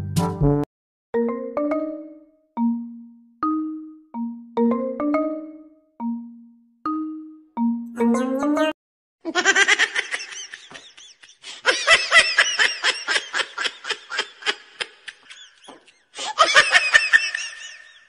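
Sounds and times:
person laughing hard: 9.3s - 18.0s.

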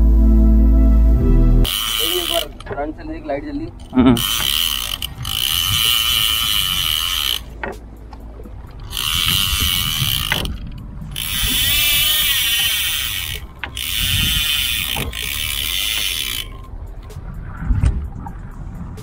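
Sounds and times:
fishing reel ratcheting: 1.7s - 7.8s, 8.8s - 17.0s.

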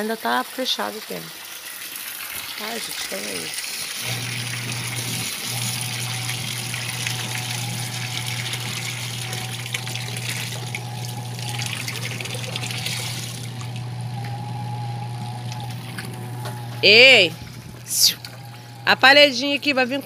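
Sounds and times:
water running: 0.0s - 20.0s
low hum: 4.1s - 20.0s.

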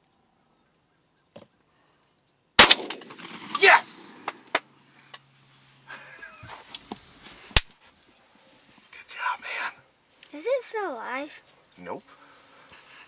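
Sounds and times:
shotgun shot: 2.6s - 4.4s.

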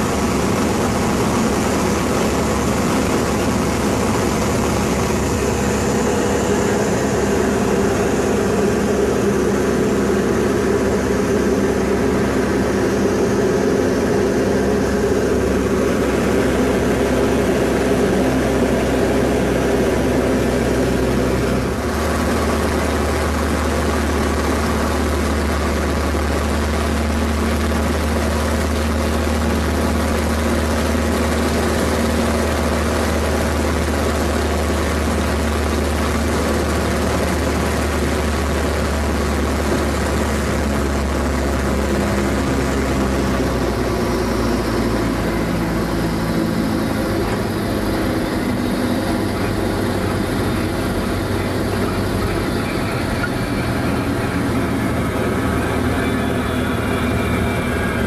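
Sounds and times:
wind rush: 0.0s - 25.3s
propeller plane engine running: 0.0s - 58.0s.

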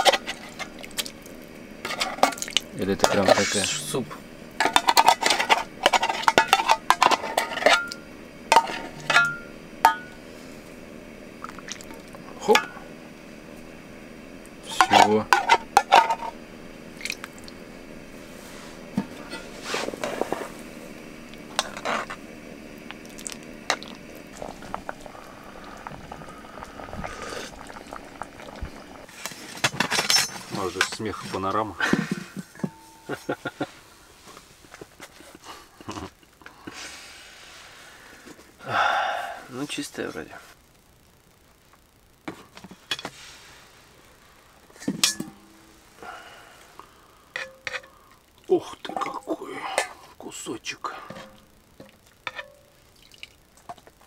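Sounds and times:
utensils clinking on pot and dishes: 4.6s - 10.2s, 29.6s - 31.4s, 44.8s - 45.5s, 52.3s - 52.6s
soup bubbling in pot: 7.9s - 12.8s, 15.8s - 18.2s, 19.1s - 29.3s, 51.1s - 54.0s.

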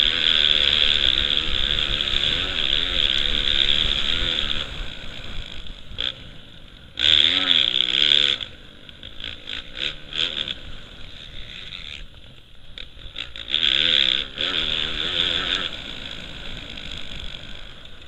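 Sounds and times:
motocross bike engine revving: 0.0s - 18.0s.

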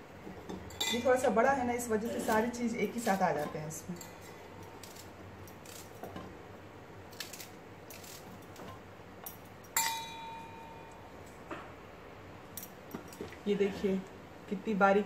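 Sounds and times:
metal bowl ringing clink: 0.6s - 1.3s, 9.2s - 11.0s.

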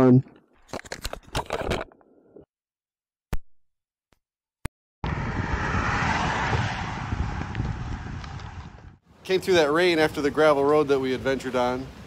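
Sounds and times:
steady rushing noise with low rumble: 5.0s - 9.0s.

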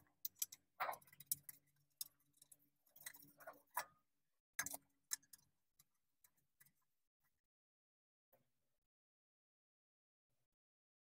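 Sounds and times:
faint metal clicks and taps: 0.0s - 4.0s, 4.6s - 6.9s.

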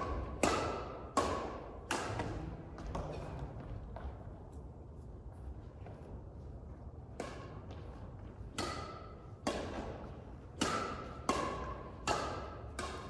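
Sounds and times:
racquets hitting shuttlecock: 0.0s - 3.2s, 6.8s - 13.0s.

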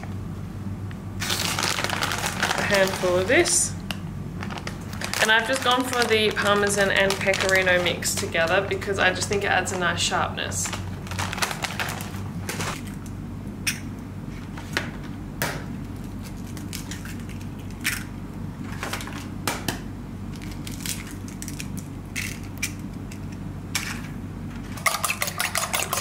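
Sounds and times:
steady low hum: 0.0s - 26.0s
plastic bag rustling: 1.2s - 3.7s, 4.3s - 12.9s
eggs cracking on a bowl: 24.8s - 26.0s.

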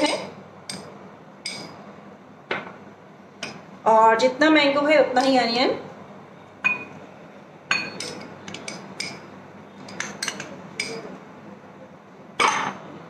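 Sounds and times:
metal spoon clinking against glass bowls: 1.5s - 1.8s, 6.6s - 6.9s, 7.7s - 9.2s, 9.8s - 11.1s, 12.4s - 12.8s.

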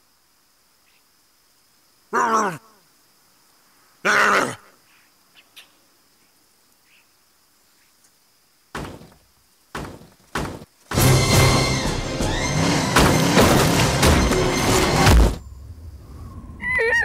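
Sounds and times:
heavy thuds: 8.8s - 15.5s.

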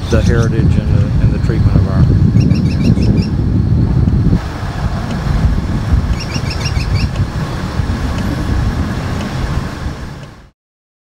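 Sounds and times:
uneven low rumble: 0.0s - 10.5s
bird chirping: 2.3s - 3.4s, 6.1s - 7.2s.

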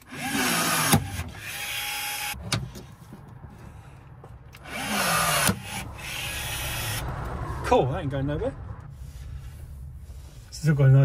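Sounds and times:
rivet tool motor whining: 0.0s - 2.4s, 4.6s - 7.1s.

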